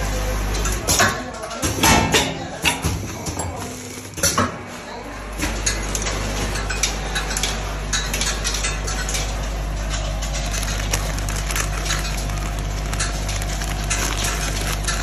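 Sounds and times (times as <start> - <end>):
low machine hum: 3.7 - 15.0
plastic bags crinkling and clinking: 5.6 - 15.0.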